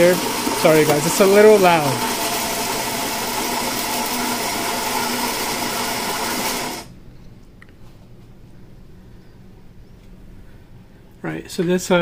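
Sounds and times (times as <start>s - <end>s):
coffee grinder grinding beans: 0.0s - 6.9s.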